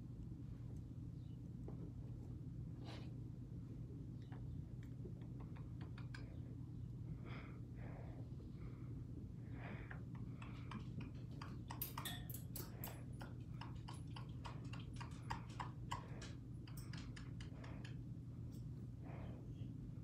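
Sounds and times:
steady low hum: 0:00.0 - 0:20.0
parrot clicking and tapping on perch: 0:10.1 - 0:18.0.

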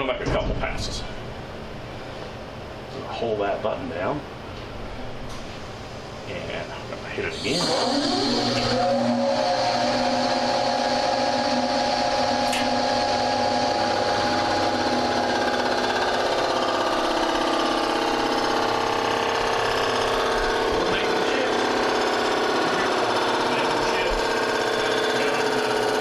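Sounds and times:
machine cutter spindle whining: 0:07.3 - 0:26.0.

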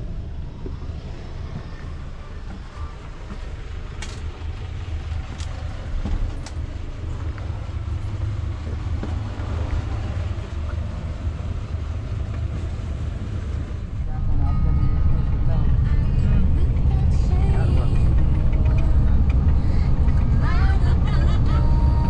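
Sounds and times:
moving vehicle rumble: 0:00.0 - 0:22.0.

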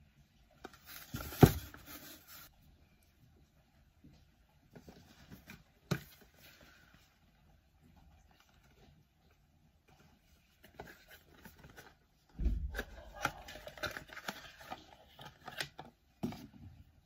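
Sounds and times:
cardboard box rustling and scraping: 0:00.7 - 0:02.5.

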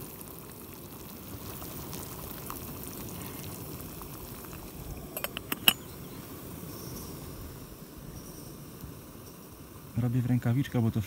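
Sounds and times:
metal lid clinking on pot: 0:05.1 - 0:05.9.

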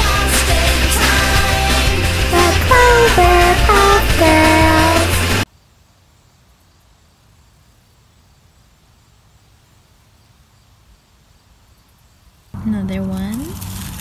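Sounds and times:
music: 0:00.0 - 0:05.4
low outdoor background noise: 0:05.4 - 0:14.0
insects humming: 0:05.5 - 0:12.6.

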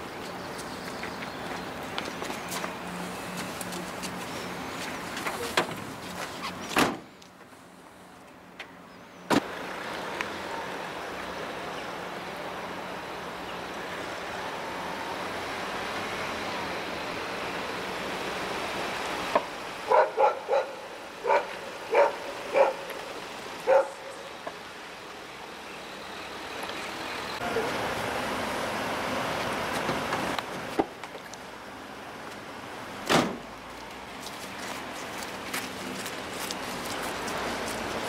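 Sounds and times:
vehicle noise: 0:00.0 - 0:38.0
sliding van door slamming shut: 0:06.7 - 0:07.1, 0:33.0 - 0:33.4
dog barking: 0:19.9 - 0:22.9, 0:23.6 - 0:24.2.

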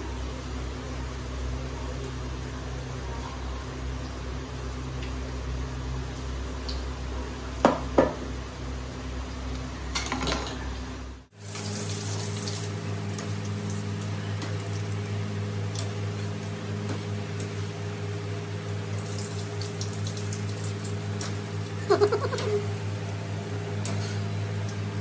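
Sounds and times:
food sizzling in hot oil: 0:11.3 - 0:16.7, 0:18.5 - 0:25.0.

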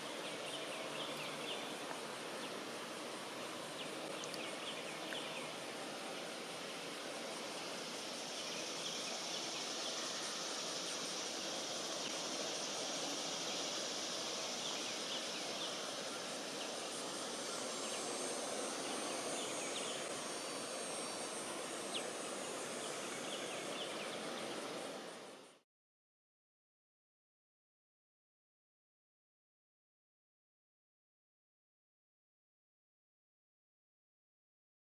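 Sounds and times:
high-pitched insect drone: 0:00.0 - 0:25.6.

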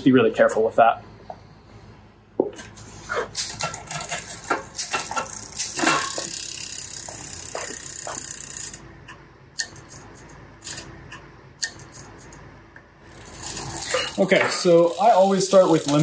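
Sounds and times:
bike chain and freewheel whirring: 0:03.1 - 0:08.8, 0:10.6 - 0:10.9, 0:13.0 - 0:16.0
bike drivetrain clicks and knocks: 0:03.4 - 0:08.8, 0:13.1 - 0:16.0.

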